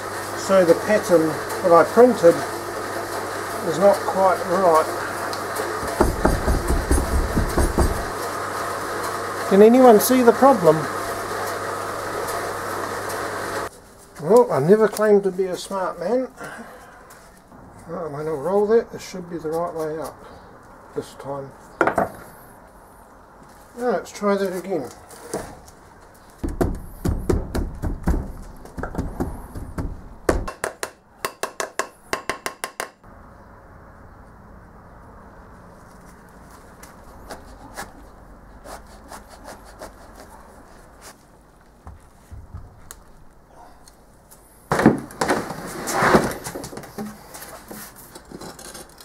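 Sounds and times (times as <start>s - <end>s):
wooden rod tapping: 29.8s - 33.0s
sand scraping and crumbling: 45.3s - 46.6s.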